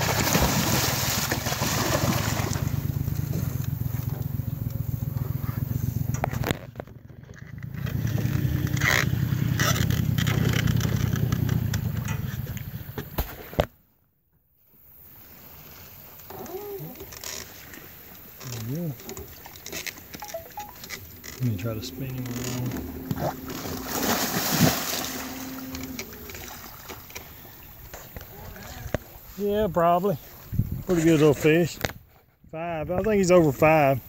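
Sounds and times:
fish thrashing and splashing: 0.0s - 3.1s, 17.1s - 28.1s
boat motor idling: 2.2s - 12.7s, 17.7s - 28.2s.

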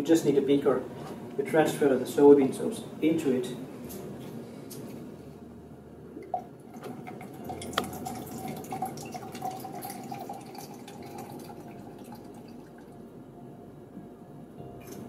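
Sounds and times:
liquid trickling into beaker: 6.2s - 13.0s.

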